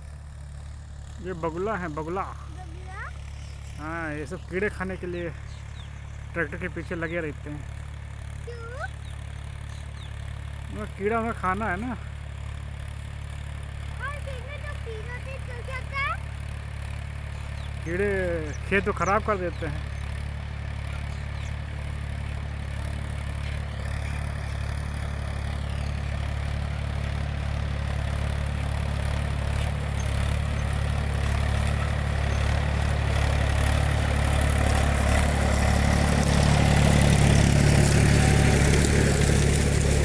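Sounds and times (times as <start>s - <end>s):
tractor diesel engine running: 0.0s - 40.0s.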